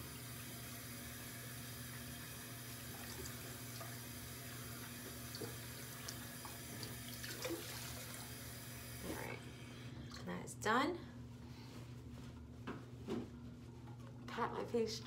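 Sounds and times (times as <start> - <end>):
faucet running: 0.0 - 9.1
small water splashes: 5.3 - 8.3.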